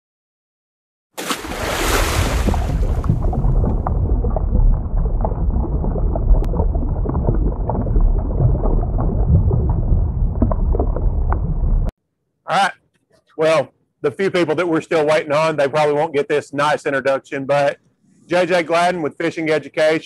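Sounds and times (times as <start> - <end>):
low rumbling noise: 2.0 - 11.9
crackles and clicks: 2.5 - 11.9.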